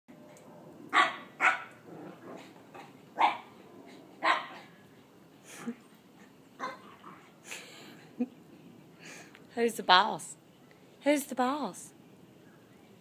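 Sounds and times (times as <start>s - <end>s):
dogs play-fighting: 0.2s - 8.1s
dog barking and yipping: 0.9s - 1.8s, 2.4s - 3.6s, 4.2s - 4.8s, 6.6s - 7.0s.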